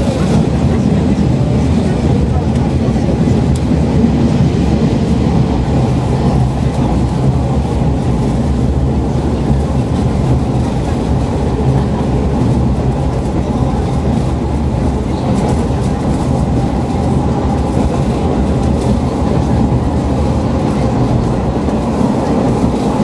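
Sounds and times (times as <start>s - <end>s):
diesel railcar rumble: 0.0s - 23.0s.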